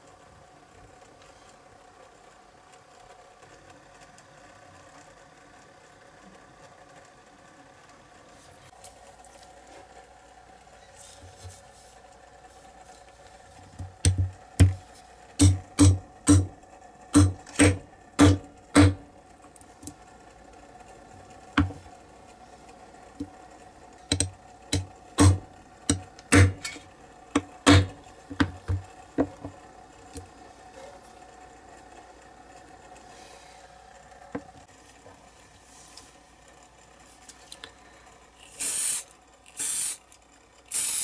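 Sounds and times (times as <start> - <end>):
hammer tapping metal punch: 13.8 - 14.8, 15.4 - 16.6, 17.2 - 19.0, 24.1 - 26.8, 27.4 - 29.6.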